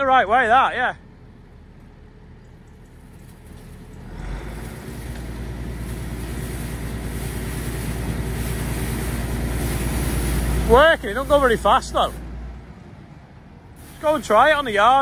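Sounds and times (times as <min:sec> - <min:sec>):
tractor engine speeding up: 0:01.0 - 0:15.0
hiss of spinning brush: 0:03.4 - 0:12.3, 0:13.7 - 0:14.8.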